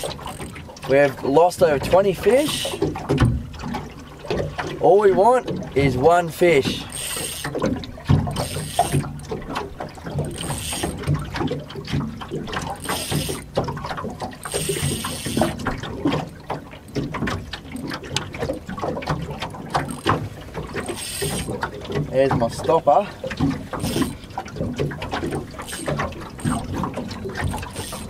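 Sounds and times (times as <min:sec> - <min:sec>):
spinning reel cranking: 0:00.0 - 0:00.6, 0:02.3 - 0:02.8, 0:06.6 - 0:07.6, 0:08.3 - 0:09.1, 0:10.2 - 0:11.1, 0:12.7 - 0:13.5, 0:14.4 - 0:15.6, 0:19.8 - 0:20.2, 0:20.8 - 0:21.6, 0:23.8 - 0:24.2, 0:25.6 - 0:28.0
water lapping around boat: 0:00.0 - 0:28.0.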